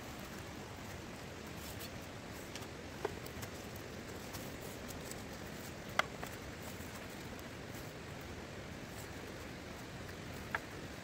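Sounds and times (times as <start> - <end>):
faint steady hiss: 0.0 - 11.0
bamboo pieces clacking: 1.8 - 7.5.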